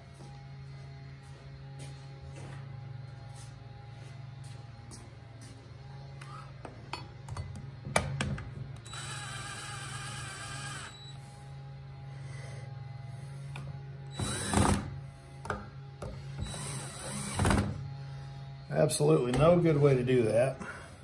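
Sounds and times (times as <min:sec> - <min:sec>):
cordless drill motor whining: 0:08.8 - 0:11.5, 0:13.5 - 0:15.5, 0:16.2 - 0:18.8.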